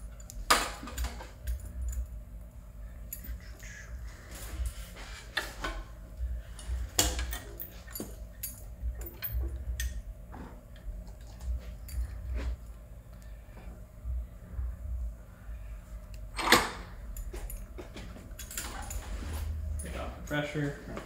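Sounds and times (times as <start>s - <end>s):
low rumble: 13.8s - 16.3s.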